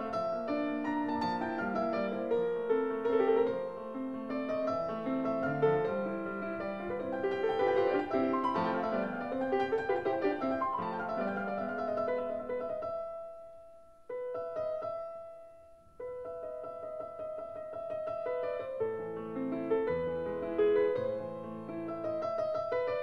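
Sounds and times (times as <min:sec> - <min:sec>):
solo piano music: 0:00.0 - 0:23.0.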